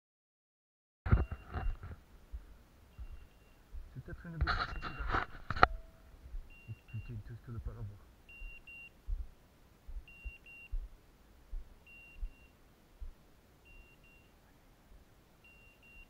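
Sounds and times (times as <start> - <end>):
low thumps: 1.1 - 6.6, 8.4 - 12.4, 13.0 - 13.2
high double beep: 3.0 - 3.6, 4.6 - 5.1, 5.7 - 7.2, 8.3 - 8.9, 10.1 - 10.8, 11.9 - 12.5.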